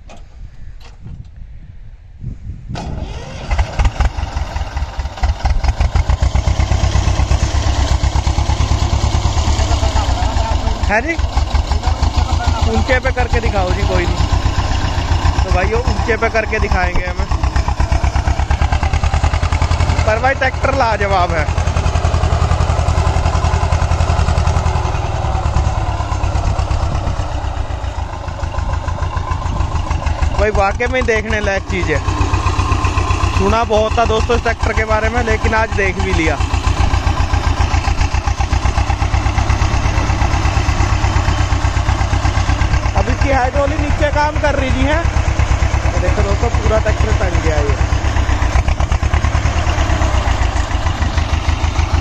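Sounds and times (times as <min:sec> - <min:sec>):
tractor diesel engine running: 0:02.8 - 0:52.0.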